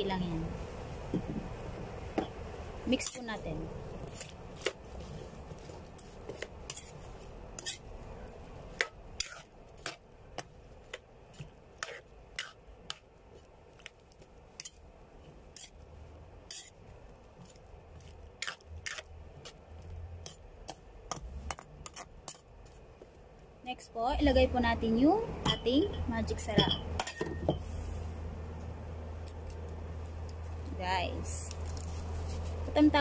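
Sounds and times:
metal ladle scraping a wok: 4.0 - 7.9, 8.7 - 10.0, 11.8 - 13.0, 15.5 - 15.8, 16.4 - 16.8.

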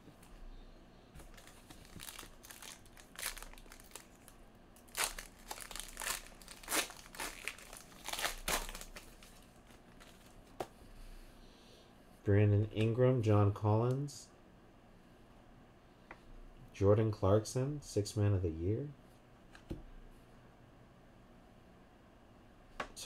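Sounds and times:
wrapper crinkling: 1.2 - 10.5.

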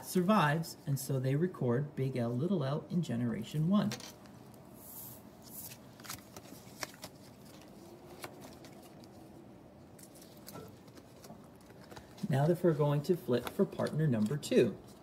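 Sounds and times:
paper rustling: 3.9 - 15.0.

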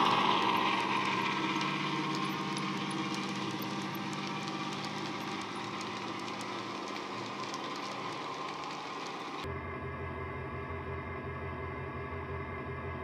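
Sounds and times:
diesel engine sound drone: 0.0 - 9.4
model wagon wheels clicking: 0.0 - 9.4.

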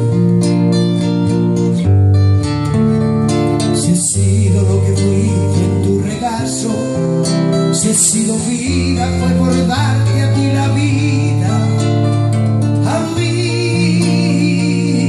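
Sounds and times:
classical guitar strumming: 0.0 - 15.0
man singing: 3.6 - 15.0.

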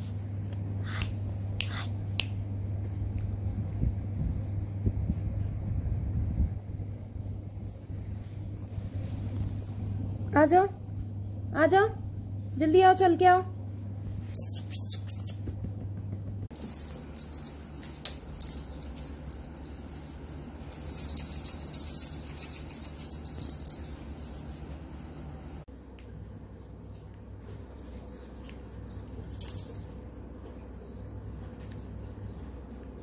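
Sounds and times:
small jingle bell shaken: 16.5 - 33.0.

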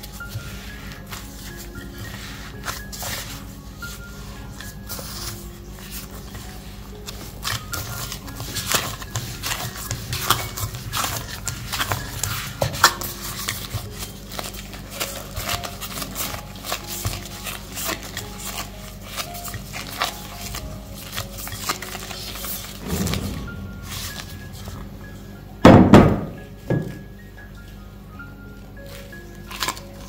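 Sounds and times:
hands kneading dough in glass bowl: 0.0 - 22.9.

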